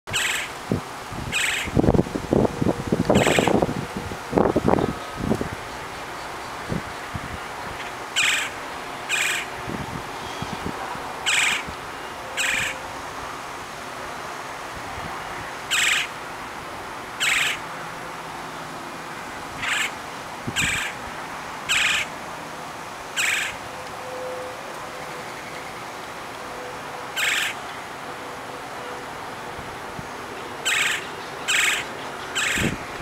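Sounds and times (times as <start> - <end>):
woodpecker calls: 0.1 - 0.5, 1.3 - 1.8, 3.1 - 3.6, 7.8 - 9.5, 11.2 - 11.7, 12.4 - 12.8, 15.7 - 16.1, 17.2 - 17.6, 19.6 - 20.0, 20.6 - 21.0, 21.7 - 22.1, 23.1 - 23.6, 27.1 - 27.6, 30.4 - 32.8.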